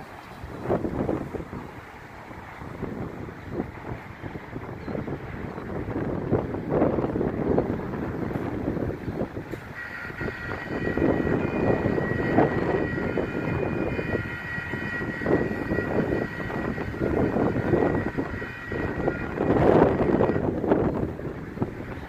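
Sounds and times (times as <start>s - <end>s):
wind buffeting microphone: 0.0s - 22.0s
railroad crossing bell ringing: 9.6s - 20.5s.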